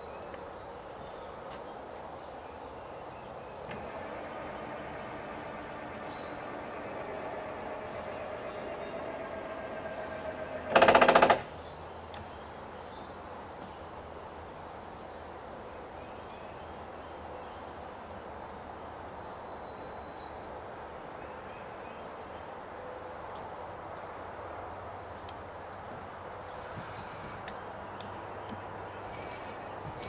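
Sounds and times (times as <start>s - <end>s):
quiet outdoor background: 0.0s - 30.0s
electric motor whining: 3.6s - 11.5s
loud rapid rattle: 3.8s - 11.6s.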